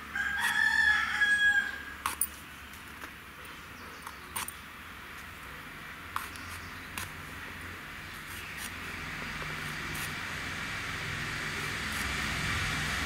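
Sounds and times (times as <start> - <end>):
vegetables being cut clicks: 6.2 - 7.2.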